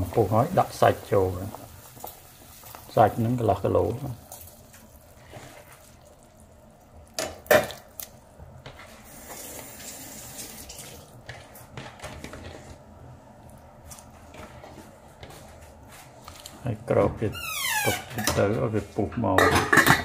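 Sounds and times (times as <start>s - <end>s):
water bubbling in a pot: 0.0s - 11.2s.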